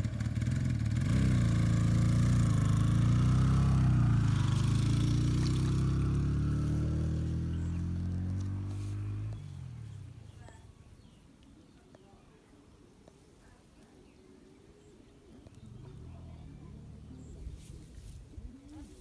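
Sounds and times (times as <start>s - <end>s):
motor engine humming: 0.0s - 11.2s.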